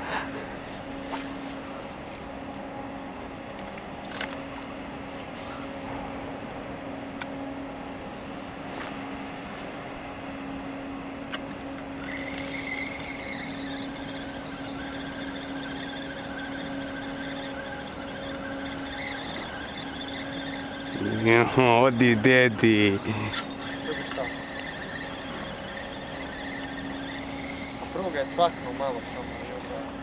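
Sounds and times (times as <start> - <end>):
boat motor humming: 0.0 - 30.0
fishing reel whirring: 11.2 - 30.0.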